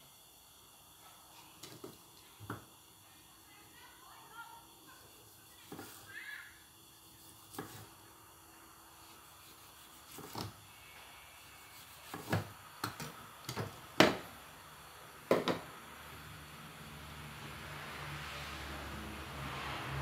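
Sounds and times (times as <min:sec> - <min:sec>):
steady hiss with low hum: 0:00.0 - 0:20.0
utensils and dishes knocking: 0:15.3 - 0:15.6.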